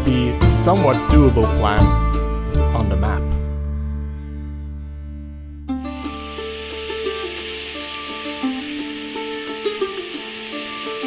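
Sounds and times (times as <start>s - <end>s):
held music tones: 5.7s - 11.0s
bright hiss: 5.8s - 11.0s.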